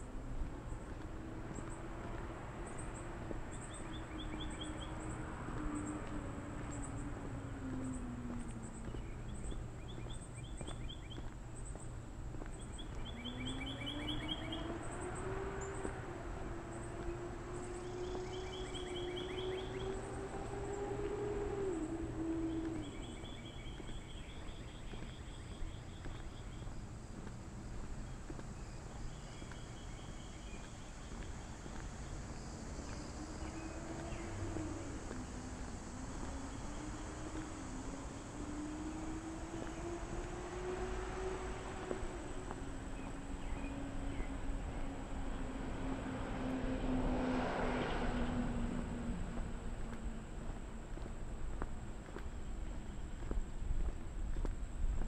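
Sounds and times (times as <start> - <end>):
insects chirping: 1.6 - 6.0, 6.7 - 46.6
low drone sliding in pitch: 12.8 - 25.6, 29.8 - 51.4.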